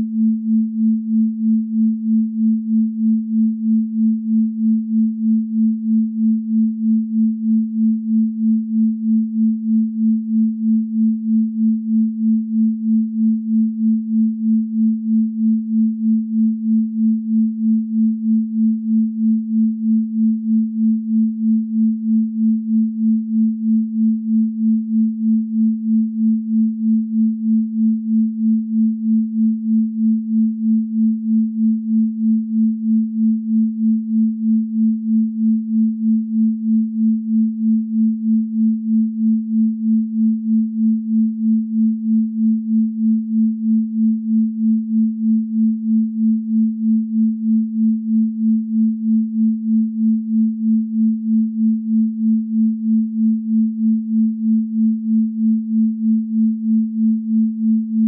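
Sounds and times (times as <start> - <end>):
pulsing low sine tone: 0.0 - 58.0.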